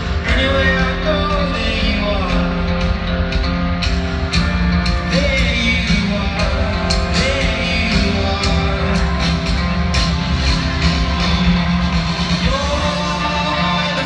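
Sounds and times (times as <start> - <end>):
male lead vocal: 0.0 - 3.4, 4.4 - 14.0
live pop-rock band: 0.0 - 14.0
steady drum beat: 0.0 - 14.0.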